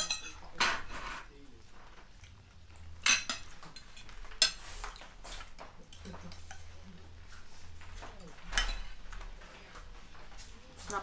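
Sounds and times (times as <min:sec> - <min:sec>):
cutlery clinking on plates: 0:00.0 - 0:01.2, 0:03.0 - 0:09.9.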